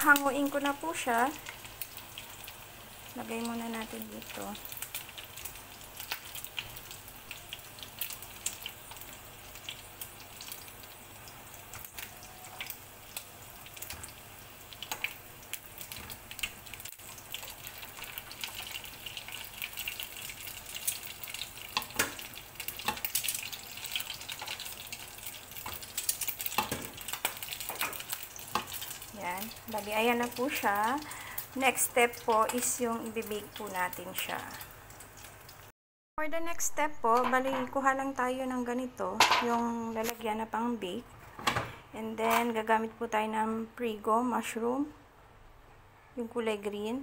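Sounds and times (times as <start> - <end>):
meatballs sizzling in oil: 0.0 - 35.7.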